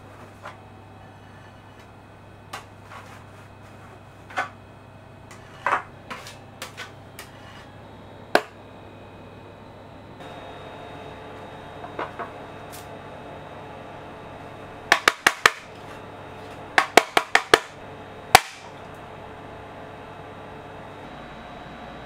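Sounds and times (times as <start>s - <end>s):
knife scraping plastic mould: 5.3s - 7.7s.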